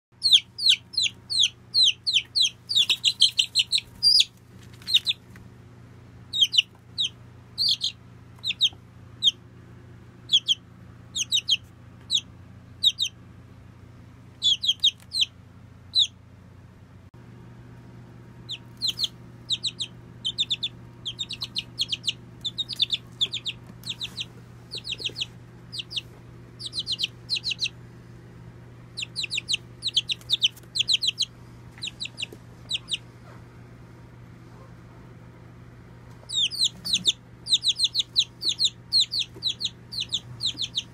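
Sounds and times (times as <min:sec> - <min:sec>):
steady low hum: 0:00.1 - 0:40.9
chick peeping: 0:00.2 - 0:05.4, 0:06.3 - 0:09.4, 0:10.2 - 0:13.2, 0:14.3 - 0:16.2, 0:18.4 - 0:27.8, 0:28.9 - 0:33.4, 0:36.1 - 0:40.9.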